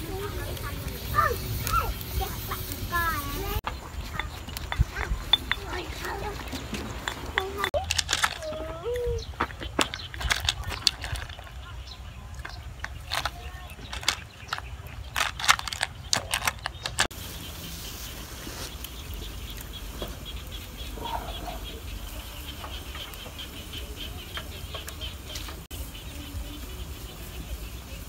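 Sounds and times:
low wind rumble: 0.0 - 28.0
snail shells clattering in metal pot: 4.0 - 8.7, 9.6 - 17.1.

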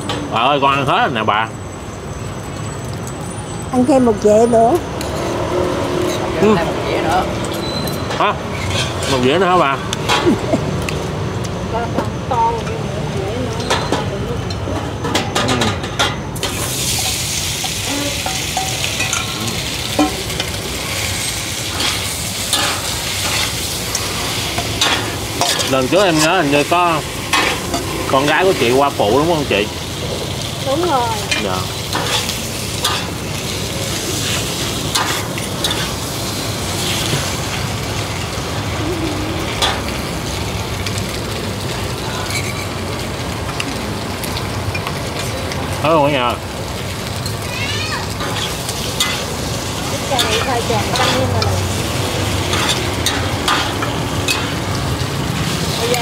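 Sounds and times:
food sizzling in oil: 0.0 - 56.0
spatula scraping a pan: 8.5 - 9.3, 42.2 - 42.8.

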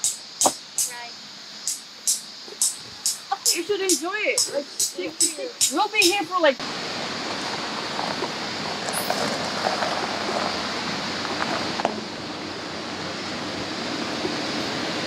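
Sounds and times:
steady rushing noise: 0.0 - 15.0
tyres crunching on gravel: 7.4 - 12.0.

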